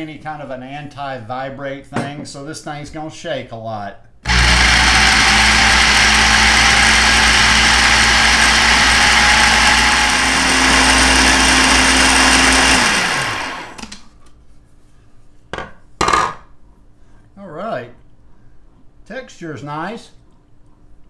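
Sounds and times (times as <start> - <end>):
motor winding down: 4.3 - 13.9
food processor running: 4.3 - 14.0.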